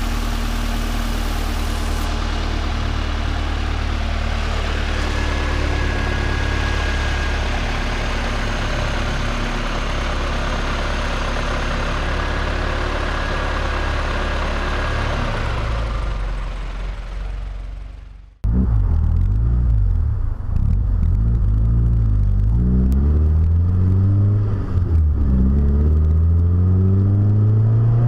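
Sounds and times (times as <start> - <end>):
car engine idling: 0.0 - 22.5.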